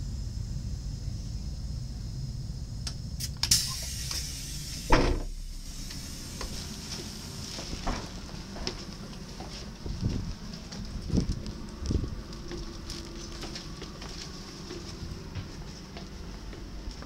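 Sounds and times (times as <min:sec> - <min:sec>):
train humming: 0:00.0 - 0:17.0
train door thumping open: 0:03.4 - 0:05.5, 0:07.6 - 0:08.7
light footsteps on steps: 0:07.6 - 0:17.0.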